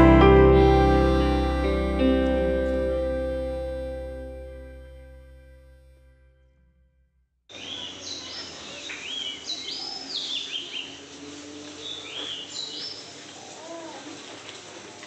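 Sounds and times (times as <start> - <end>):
birds chirping: 7.5 - 13.6.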